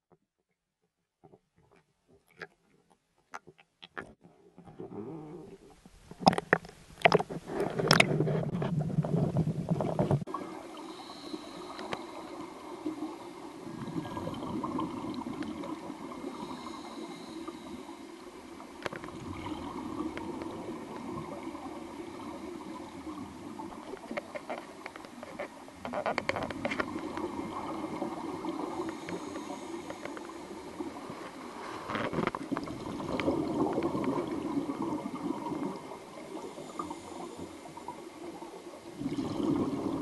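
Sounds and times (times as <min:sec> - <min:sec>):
water splashing against camera: 0:01.2 - 0:12.2, 0:18.6 - 0:36.2
muffled underwater rush: 0:07.1 - 0:24.8, 0:26.5 - 0:40.0.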